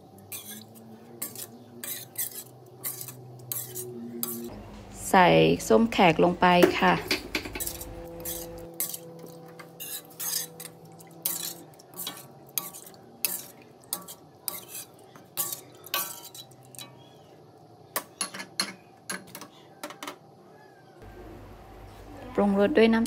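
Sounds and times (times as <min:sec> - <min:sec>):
metal ladle scraping a wok: 0:00.1 - 0:04.5, 0:06.8 - 0:17.2.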